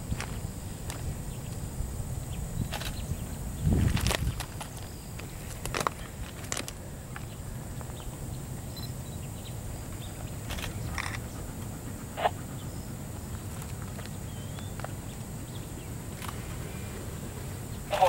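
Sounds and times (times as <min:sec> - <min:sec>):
distant steam locomotive rumble: 0:05.1 - 0:18.0.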